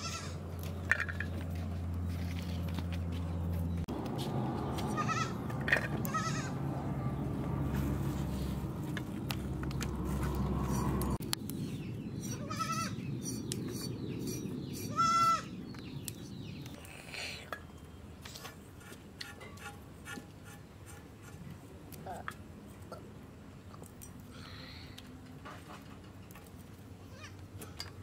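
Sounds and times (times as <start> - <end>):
goats bleating: 4.9 - 5.4, 6.0 - 6.6.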